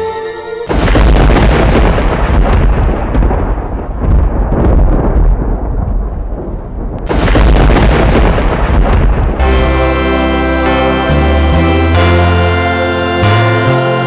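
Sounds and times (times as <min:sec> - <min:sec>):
music: 0:00.0 - 0:01.1, 0:09.4 - 0:14.0
deep thunder-like rumbling: 0:00.7 - 0:09.8.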